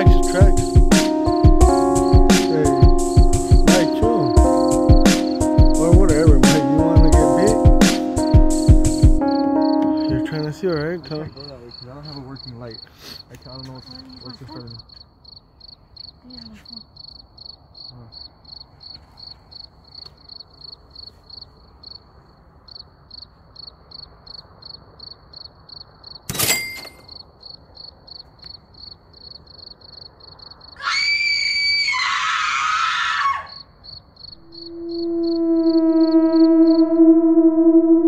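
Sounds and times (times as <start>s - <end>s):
cricket chirping: 0.0s - 32.0s, 33.0s - 37.1s
loud high-pitched shriek: 34.4s - 38.0s.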